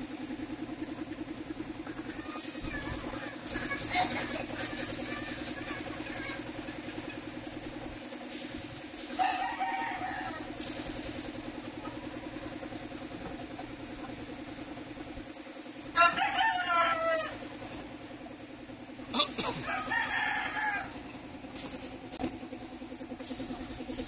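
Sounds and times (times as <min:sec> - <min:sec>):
air compressor pulsing hum: 0:00.0 - 0:24.0
spray gun hissing: 0:02.4 - 0:05.6, 0:08.3 - 0:09.4, 0:10.6 - 0:11.4, 0:21.6 - 0:24.0
rooster crowing: 0:09.1 - 0:10.7, 0:15.9 - 0:17.4, 0:19.4 - 0:21.0.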